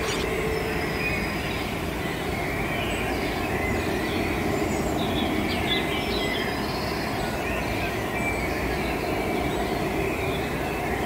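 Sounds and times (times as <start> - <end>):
faint bird chirps: 0.0 - 4.0.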